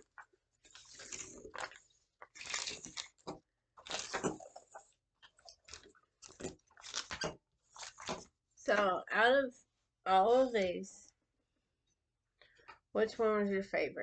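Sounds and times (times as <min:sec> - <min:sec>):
mouth and chewing noises: 0:00.1 - 0:08.2.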